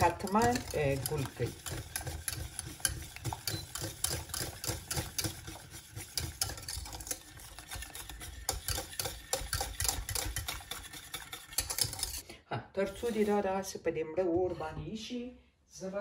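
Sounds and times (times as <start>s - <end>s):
liquid churning: 0.0s - 12.2s
whisk clicking against pan: 0.0s - 12.2s.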